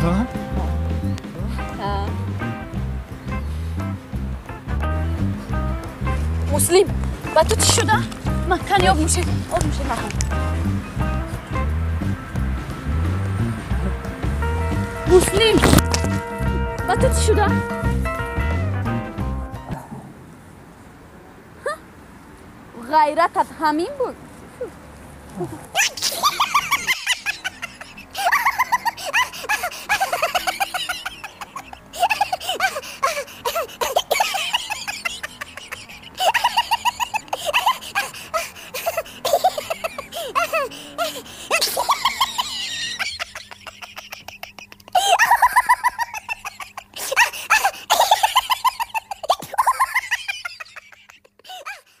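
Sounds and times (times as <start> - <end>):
music with clicking beat: 0.0 - 19.8
high-pitched cackling calls: 25.4 - 50.8.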